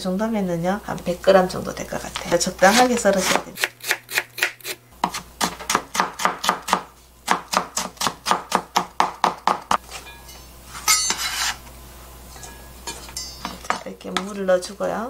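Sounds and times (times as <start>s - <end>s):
knife scraping across board: 2.6s - 3.5s, 10.7s - 11.7s
knife chopping on plastic board: 2.6s - 9.8s.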